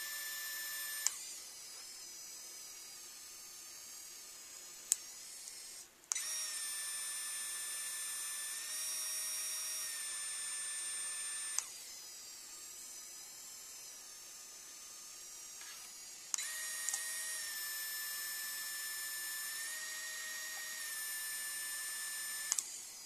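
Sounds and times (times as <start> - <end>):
printing pen motor whining: 0.0 - 23.0
sharp click: 11.5 - 11.7, 15.7 - 17.1, 22.4 - 22.7.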